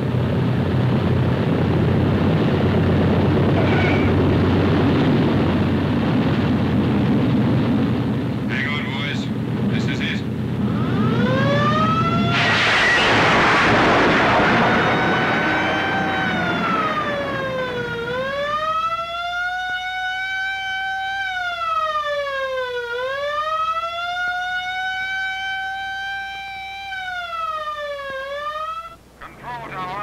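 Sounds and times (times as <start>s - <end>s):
wailing siren: 10.4s - 29.0s
loud rushing noise: 11.6s - 18.6s.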